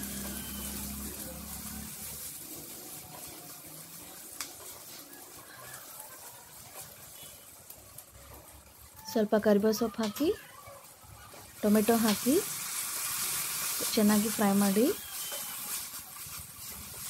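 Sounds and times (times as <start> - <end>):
spatula stirring: 0.0 - 9.0, 9.9 - 17.0
vegetables sizzling in oil: 0.0 - 17.0.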